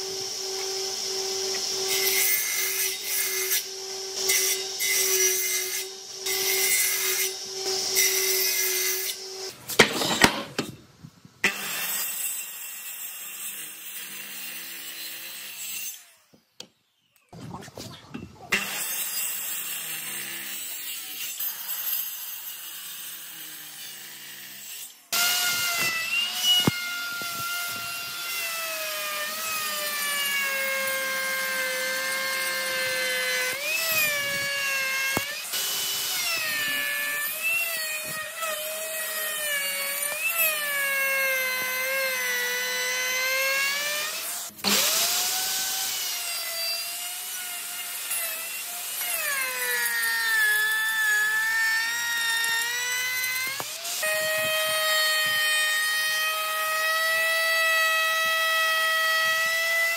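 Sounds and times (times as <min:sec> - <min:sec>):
router high whine: 0:00.0 - 0:05.2, 0:25.2 - 0:40.4, 0:41.5 - 0:55.7
circular saw cutting timber: 0:00.0 - 0:10.8, 0:11.4 - 0:16.4, 0:17.3 - 0:59.9.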